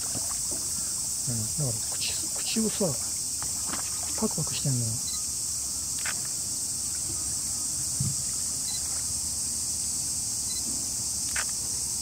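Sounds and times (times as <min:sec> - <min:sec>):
insects chorus: 0:00.0 - 0:12.0
soft thump: 0:08.0 - 0:08.3.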